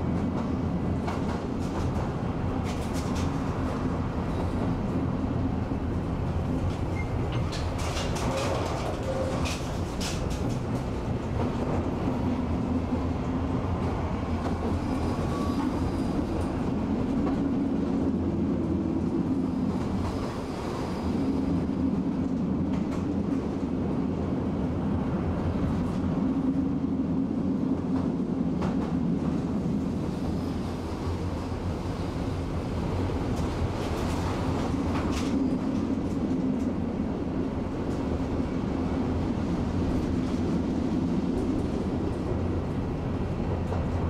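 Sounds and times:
tram motors and wheels rumbling: 0.0s - 44.0s
faint clicks over rail joints: 7.3s - 11.8s.

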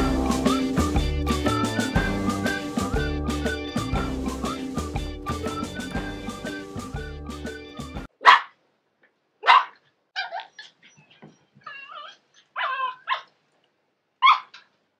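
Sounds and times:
small dog barking: 8.2s - 8.6s, 9.4s - 10.8s, 12.0s - 13.3s, 14.2s - 14.7s
dog yipping and whining: 9.5s - 13.3s, 14.2s - 14.7s.

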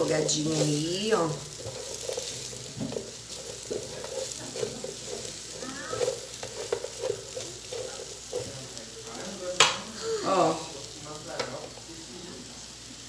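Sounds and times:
spatula scraping a pan: 0.0s - 9.4s
meat sizzling in a frying pan: 0.0s - 13.0s.

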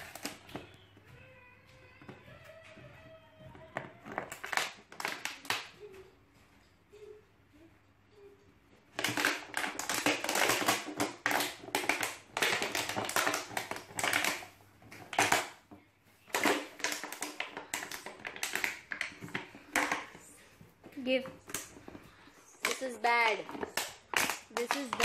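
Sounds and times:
plastic bottle crinkling: 0.0s - 0.9s, 3.5s - 5.8s, 8.9s - 25.0s.

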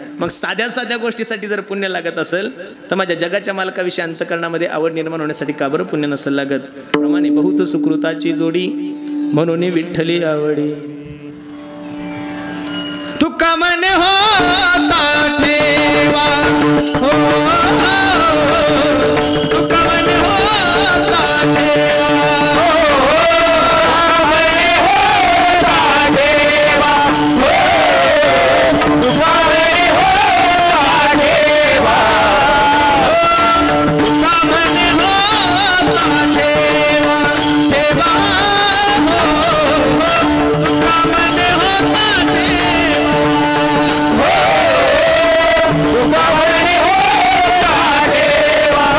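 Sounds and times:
percussion keeping time: 6.9s - 48.9s
man singing devotional song: 13.2s - 48.9s.

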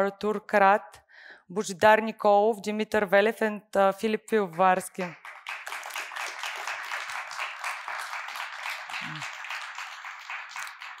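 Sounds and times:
audience applauding: 5.1s - 11.0s.

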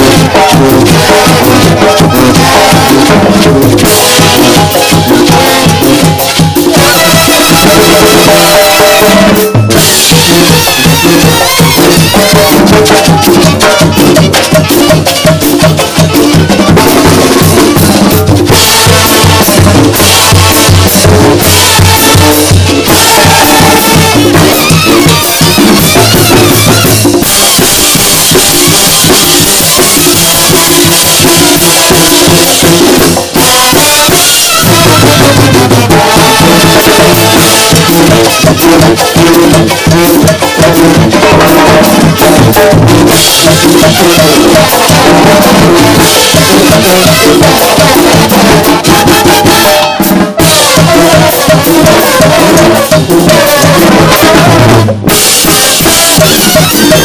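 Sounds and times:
bass drum: 0.0s - 57.0s
brass band playing: 0.0s - 57.0s
cymbals: 0.0s - 57.0s
snare drum: 0.0s - 57.0s.

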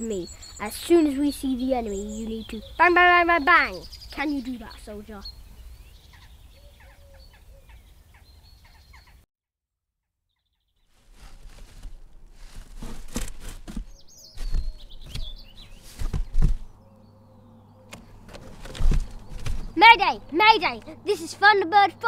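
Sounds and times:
birds chirping: 0.0s - 9.2s, 10.4s - 22.0s
thumps and scuffs on cardboard box: 11.1s - 16.7s, 18.4s - 19.8s.

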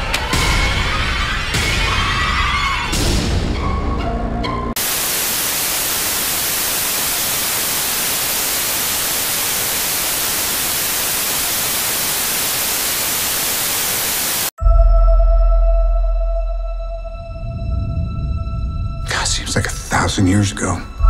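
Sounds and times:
tv static hiss: 4.8s - 14.6s.

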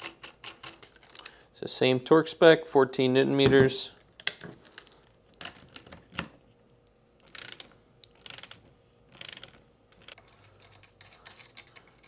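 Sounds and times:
ratcheting torque wrench clicking: 7.2s - 12.0s.

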